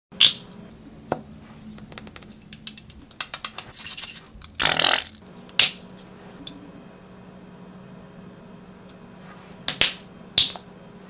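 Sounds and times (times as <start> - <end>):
faint low hum: 4.1 - 11.0.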